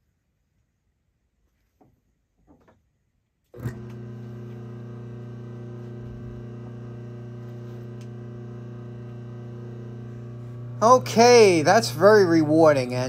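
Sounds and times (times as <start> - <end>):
electric motor humming: 3.6 - 13.0.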